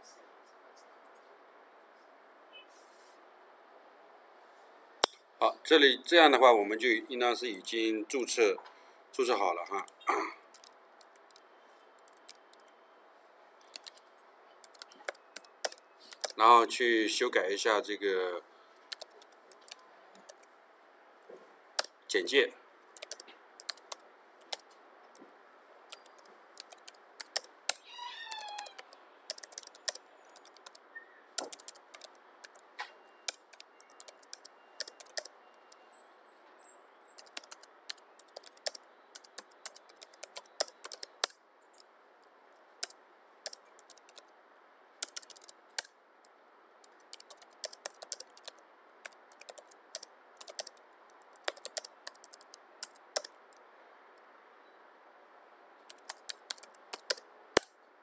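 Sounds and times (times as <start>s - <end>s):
typing on computer keyboard: 10.4s - 12.7s, 13.6s - 16.4s, 18.8s - 20.5s, 21.8s - 24.6s, 25.9s - 30.8s, 31.4s - 32.6s, 33.2s - 35.8s, 37.2s - 41.8s, 42.8s - 44.3s, 45.0s - 45.9s, 46.8s - 53.6s, 55.8s - 57.7s
pitched call falling: 27.8s - 28.9s.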